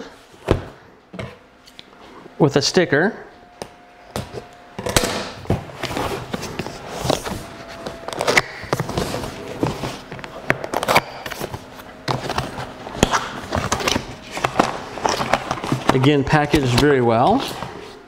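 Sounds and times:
cardboard scraping and rustling: 0:05.5 - 0:18.0.

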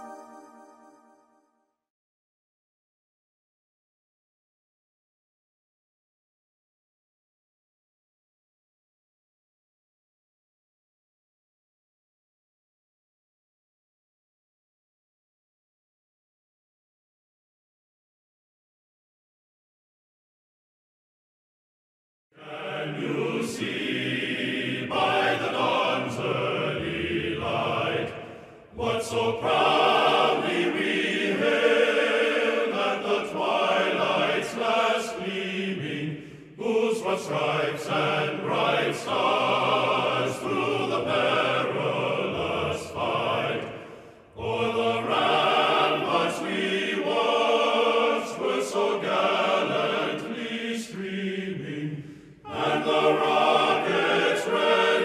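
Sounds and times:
choir singing: 0:00.0 - 0:01.1, 0:22.4 - 0:55.0.

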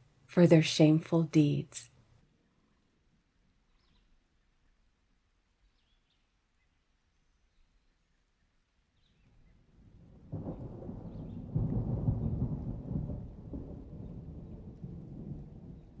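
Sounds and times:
thunder rolling: 0:09.8 - 0:16.0.

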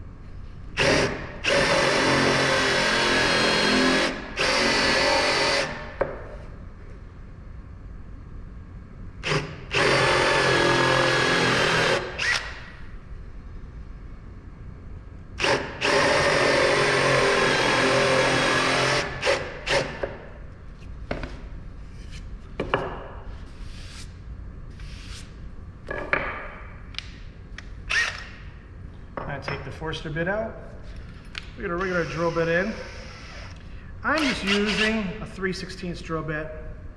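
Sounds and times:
power drill boring into wood: 0:00.8 - 0:05.8, 0:09.2 - 0:12.6, 0:15.4 - 0:19.8, 0:34.2 - 0:34.9.

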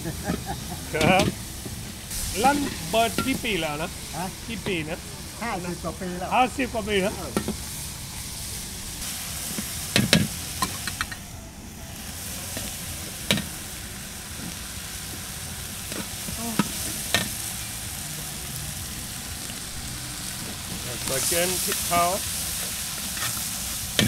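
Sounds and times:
pork sizzling in a wok: 0:00.0 - 0:24.0
utensils clanking against metal: 0:00.2 - 0:01.4, 0:02.4 - 0:03.7.

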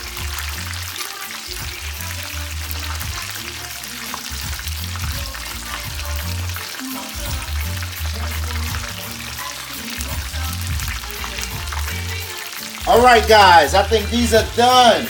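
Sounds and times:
bass-heavy music: 0:00.0 - 0:15.0
deep-frying sizzle: 0:00.0 - 0:15.0.

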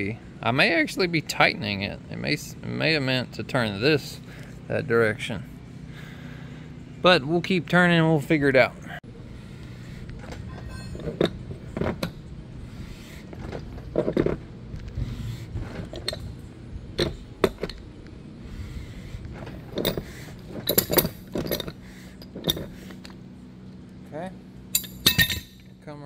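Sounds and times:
pipe wrench clanking on metal: 0:10.2 - 0:12.1, 0:19.6 - 0:23.2, 0:24.7 - 0:25.8
sharp metallic clinks: 0:10.5 - 0:11.0, 0:24.7 - 0:25.8.

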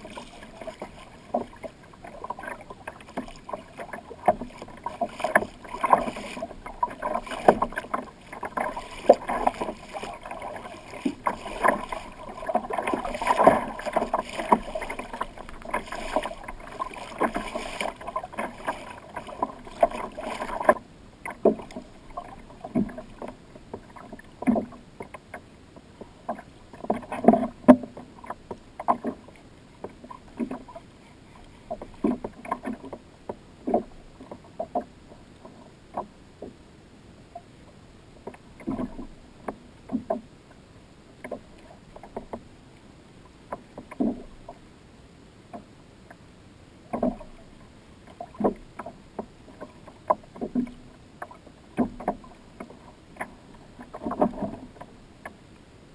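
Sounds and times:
water slapping against kayak hull: 0:00.0 - 0:30.8, 0:31.4 - 0:36.6, 0:38.2 - 0:40.3, 0:41.2 - 0:42.5, 0:43.5 - 0:44.6, 0:46.8 - 0:55.4.

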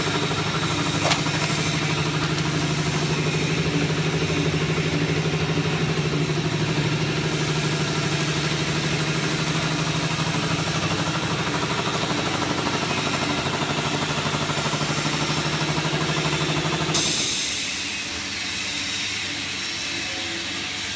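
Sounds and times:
metal shredder humming: 0:00.0 - 0:19.3.

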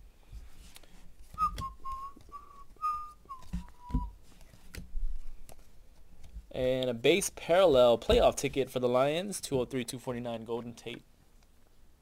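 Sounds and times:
person whistling: 0:01.4 - 0:04.2.

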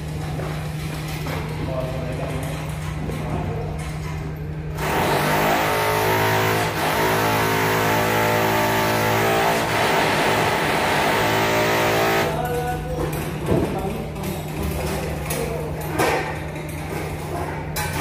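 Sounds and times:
motor humming: 0:04.8 - 0:12.3.

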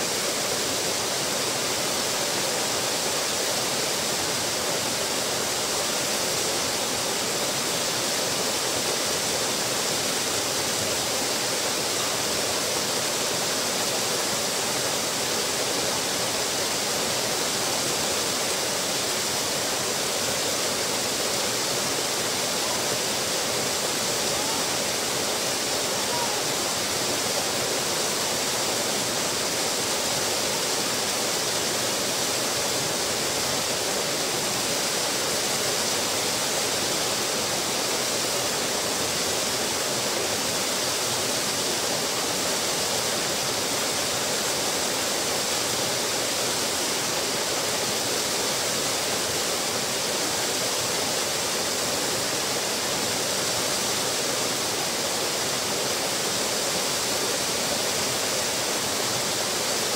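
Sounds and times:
waterfall splashing into pool: 0:00.0 - 0:59.9.

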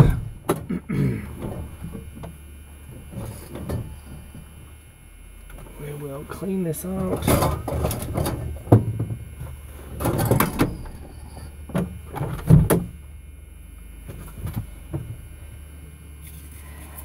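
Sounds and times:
steady low hum: 0:00.0 - 0:17.0
tools knocking and clattering: 0:07.1 - 0:09.2.

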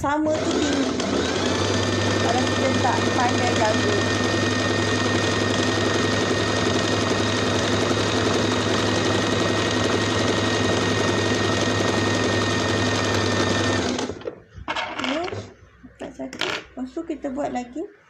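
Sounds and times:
sewing machine stitching: 0:00.3 - 0:14.3.

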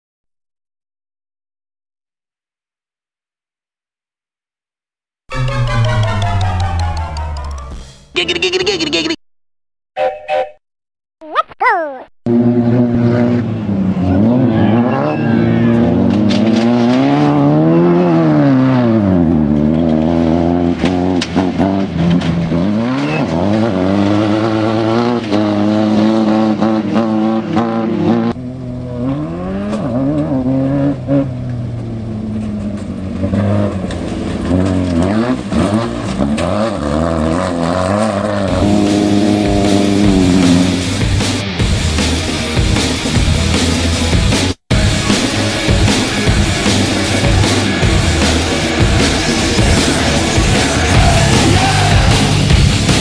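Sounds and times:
buggy engine revving hard: 0:12.3 - 0:53.0.

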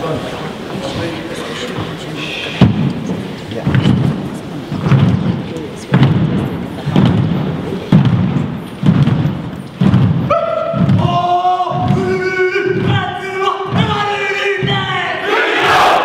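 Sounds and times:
group stamping in unison: 0:01.8 - 0:16.0
chanting voices: 0:10.2 - 0:16.0
group shouting: 0:10.3 - 0:16.0.

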